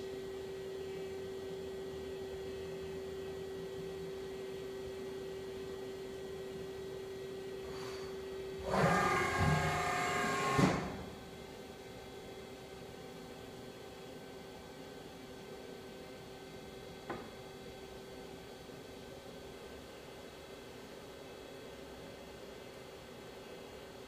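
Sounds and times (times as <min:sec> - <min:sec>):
lathe humming: 0:08.6 - 0:10.9
whirring servo drive whine: 0:08.6 - 0:11.0.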